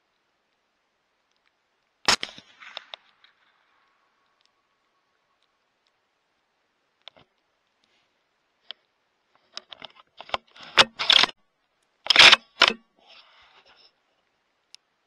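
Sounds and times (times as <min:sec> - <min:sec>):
sharp clicks: 0:01.2 - 0:04.6, 0:09.6 - 0:12.8.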